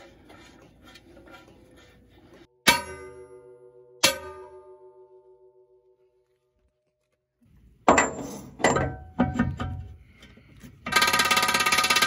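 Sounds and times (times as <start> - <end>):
impact wrench hammering: 10.8 - 12.0.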